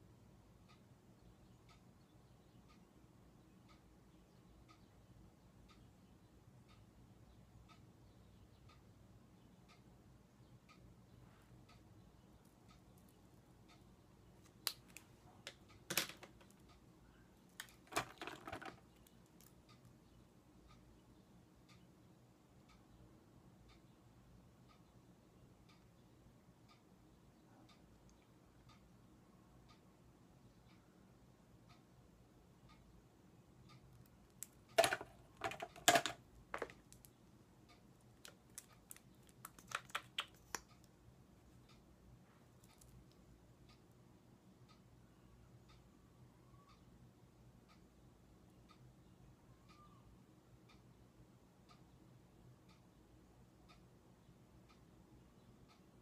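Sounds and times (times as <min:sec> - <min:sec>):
makeup items clicking and knocking: 0:14.7 - 0:16.6, 0:17.6 - 0:19.4, 0:34.4 - 0:37.1, 0:38.2 - 0:40.7
makeup cases clicking and clattering: 0:15.9 - 0:16.5, 0:17.6 - 0:18.8, 0:34.8 - 0:36.8.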